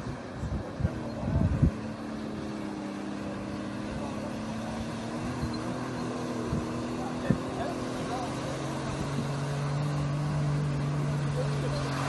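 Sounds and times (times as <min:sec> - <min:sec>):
wind on microphone: 0:00.0 - 0:02.1, 0:06.4 - 0:07.6
vehicle engines running under load: 0:00.0 - 0:12.0.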